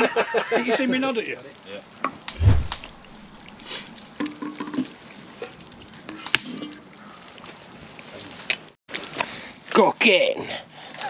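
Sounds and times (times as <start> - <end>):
liquid bubbling in a pot: 2.8 - 8.6.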